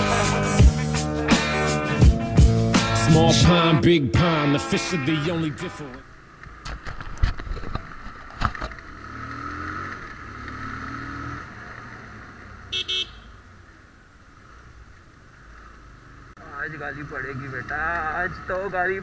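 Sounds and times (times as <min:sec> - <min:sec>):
horn toots: 0:04.2 - 0:06.0, 0:12.7 - 0:13.4.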